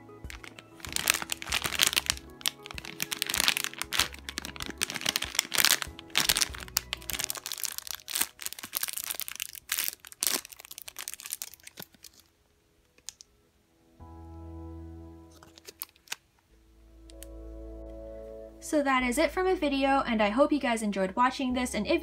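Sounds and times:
plastic bags crinkling: 0.0s - 13.3s, 15.3s - 16.2s.

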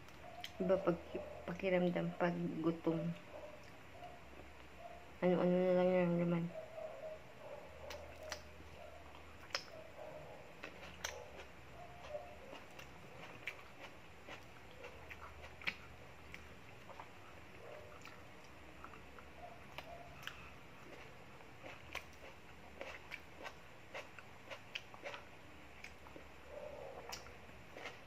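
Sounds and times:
faint low hum: 0.0s - 28.0s
person chewing with mouth smacks: 7.8s - 9.8s, 10.5s - 26.3s, 27.0s - 28.0s.

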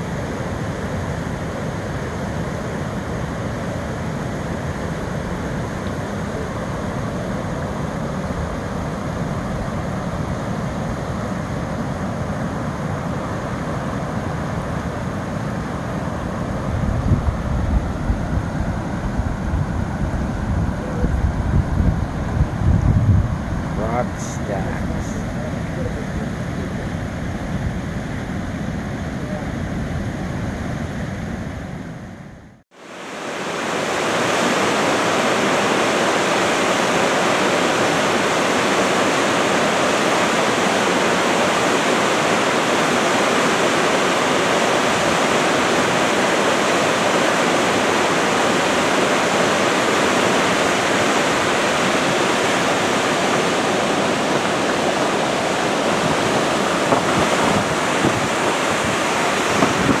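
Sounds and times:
creek water rushing over rocks: 32.7s - 60.0s.

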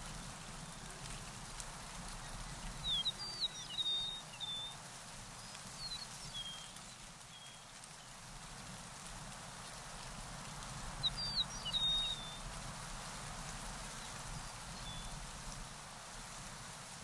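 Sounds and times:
outdoor hiss: 0.0s - 17.0s
small bird singing: 2.2s - 4.8s, 5.4s - 7.7s, 11.0s - 12.4s.

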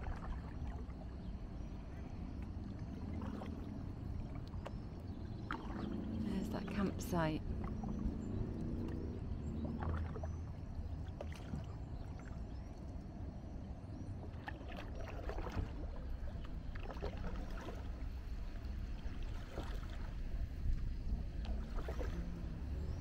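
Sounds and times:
kayak paddle dipping into water: 0.0s - 13.0s, 14.2s - 23.0s
low steady rumble: 0.0s - 23.0s
water dripping from paddle: 2.4s - 12.3s.

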